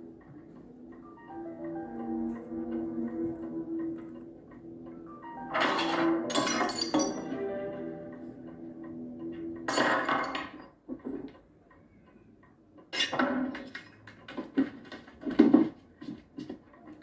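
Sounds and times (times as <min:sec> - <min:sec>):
held music chord: 0:00.0 - 0:09.7
glass bottles and crockery clinking: 0:05.6 - 0:07.2.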